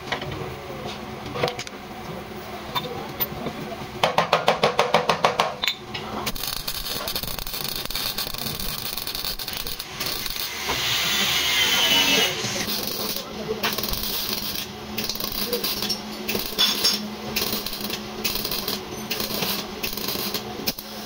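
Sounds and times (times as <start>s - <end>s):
loud steady hiss: 6.2s - 21.0s.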